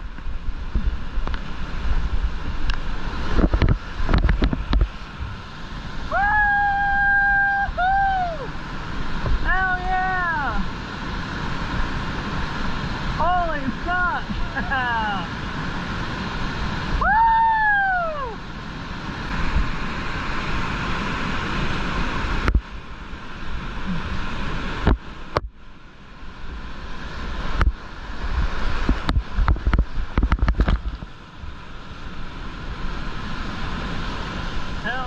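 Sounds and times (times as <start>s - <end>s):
wind buffeting microphone: 0.0s - 17.5s, 26.5s - 35.0s
rushing whitewater: 0.0s - 35.0s
falling whoop call: 6.1s - 8.5s, 17.0s - 18.4s.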